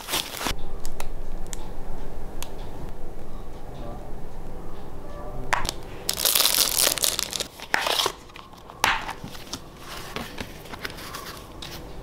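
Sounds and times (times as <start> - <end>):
plastic wrap crinkling and tearing: 0.0 - 0.5, 5.6 - 11.7.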